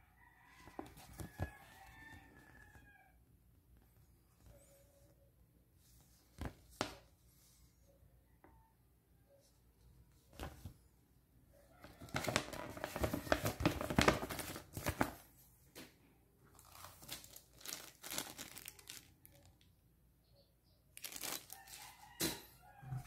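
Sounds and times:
paper rustling and crinkling: 0.6s - 2.7s, 11.8s - 15.3s, 16.5s - 19.5s, 21.0s - 22.1s
plastic bag crinkling: 16.5s - 19.6s, 21.0s - 22.0s.

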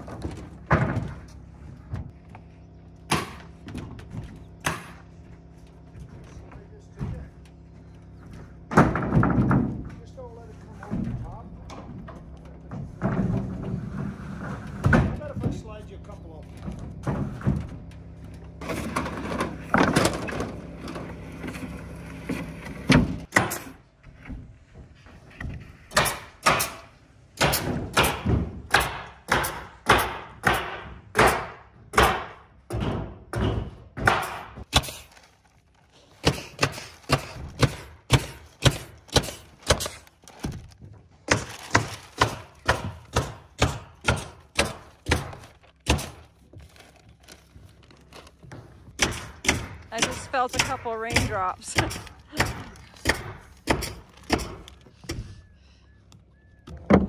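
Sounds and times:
nail gun firing into wood: 27.4s - 35.0s.

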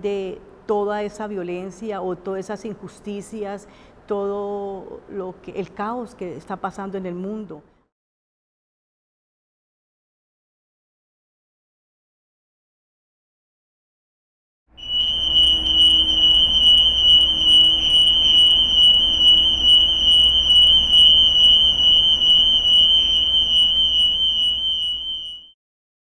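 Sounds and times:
high-pitched electronic tone: 14.8s - 25.5s.

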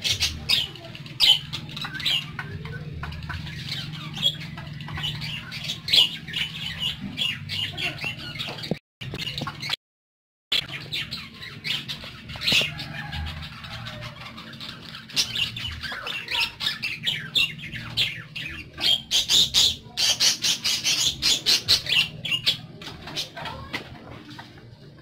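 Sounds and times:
parakeets chirping and squawking: 0.0s - 9.8s, 10.5s - 25.0s.

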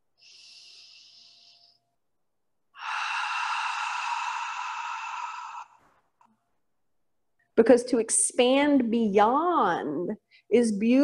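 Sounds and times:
person breathing: 0.1s - 2.0s, 2.7s - 6.1s.

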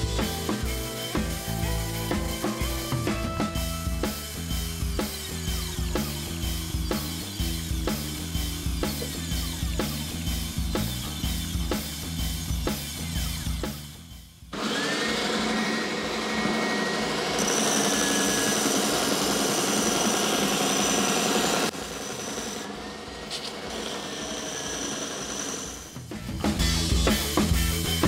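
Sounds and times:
belt sander running: 0.0s - 13.6s, 14.5s - 26.1s
wood being sanded: 14.6s - 26.0s.

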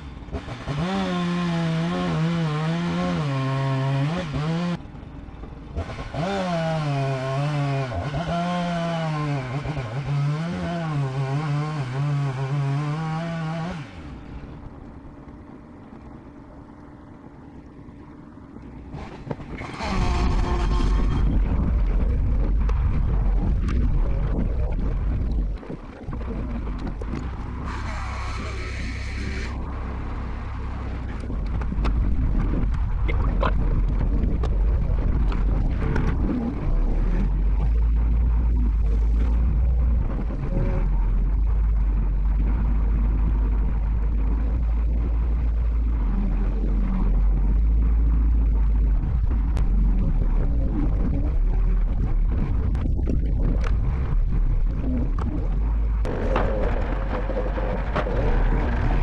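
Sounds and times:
bandsaw mill engine rumble: 0.0s - 59.0s
knocks and rattles: 55.0s - 59.0s.

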